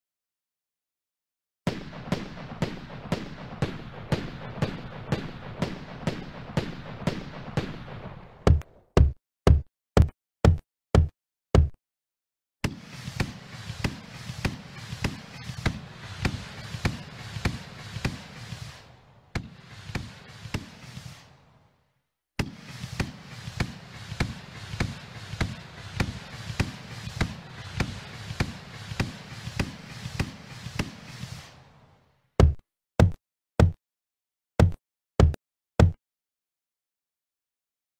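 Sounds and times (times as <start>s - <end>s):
firework bangs: 1.7s - 8.7s, 12.6s - 21.6s, 22.4s - 32.0s
fireworks crackling and popping: 1.7s - 8.7s, 12.6s - 21.7s, 22.4s - 32.2s
steady hiss: 12.7s - 21.7s, 22.4s - 32.2s.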